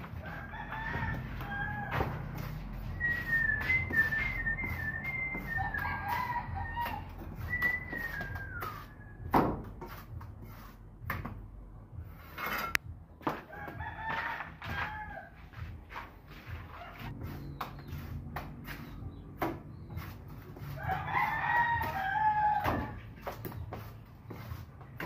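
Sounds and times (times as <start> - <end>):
roosters crowing: 0.0 - 8.6, 13.3 - 15.7, 20.6 - 23.3
trowel scraping mortar: 0.0 - 9.0, 9.6 - 11.4, 12.1 - 12.8, 15.9 - 25.0.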